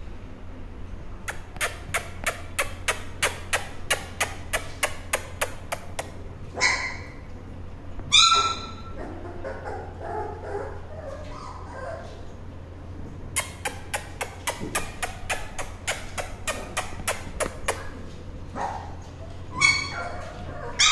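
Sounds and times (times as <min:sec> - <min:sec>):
puppies yelping: 0:06.5 - 0:07.3, 0:08.1 - 0:12.4, 0:13.4 - 0:20.9.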